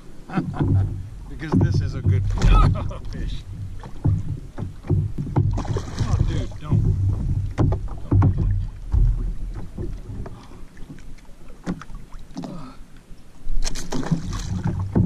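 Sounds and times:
fish tail thumping: 0.3 - 12.7, 13.6 - 15.0
fish splashing in water: 3.8 - 12.6, 13.6 - 15.0.

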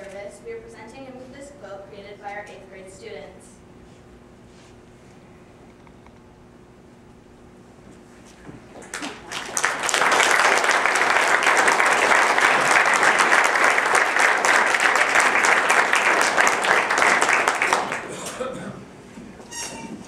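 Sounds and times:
audience applauding: 8.8 - 18.5.

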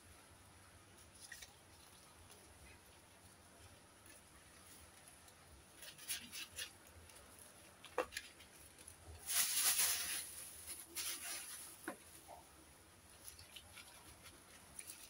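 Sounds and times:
plastic bag crinkling: 5.8 - 12.4, 13.2 - 15.0.

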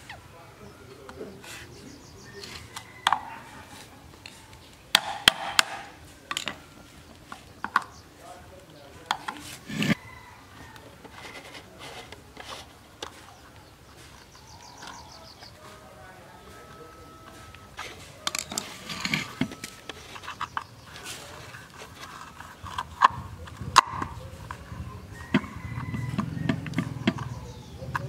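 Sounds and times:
screwdriver scraping metal cover: 9.1 - 10.0, 17.2 - 23.8.

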